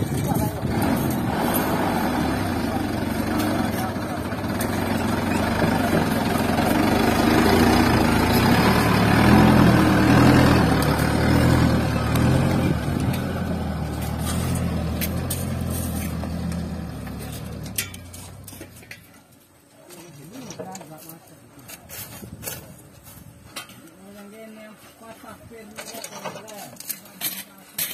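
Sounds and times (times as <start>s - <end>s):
diesel truck engine under load: 0.0s - 18.9s.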